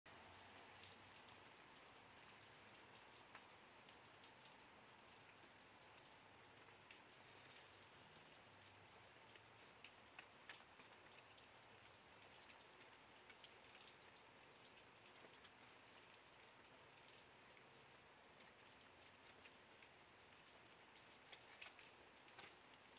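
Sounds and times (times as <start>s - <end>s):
faint steady rain: 0.1s - 22.9s.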